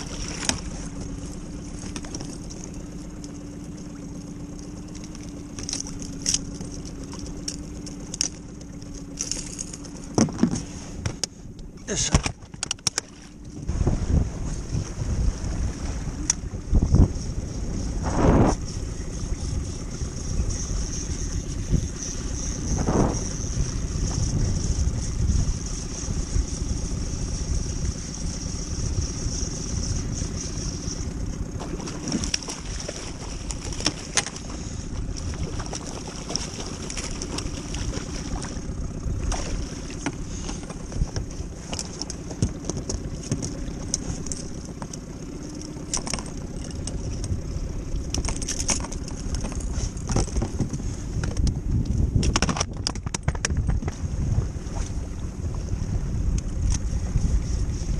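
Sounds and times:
water slapping against boat: 0.0s - 57.9s
sharp clicks and knocks: 12.1s - 13.1s, 52.2s - 54.0s
wind on microphone: 13.5s - 41.7s, 46.7s - 57.9s.

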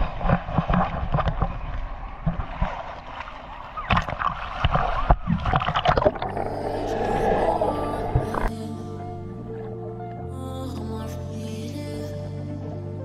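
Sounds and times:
sharp knocks and splashes: 0.0s - 6.5s
water sloshing and gurgling: 0.0s - 10.2s
background music: 6.0s - 13.0s.

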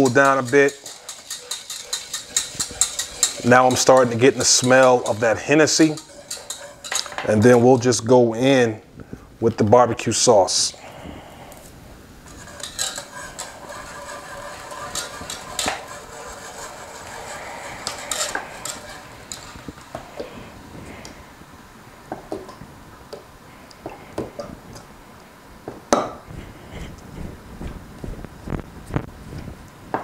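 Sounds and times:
whisk clinking against pot: 0.0s - 7.9s, 12.2s - 20.3s
whisk stirring and scraping in a pot: 0.0s - 8.7s, 12.2s - 21.2s.

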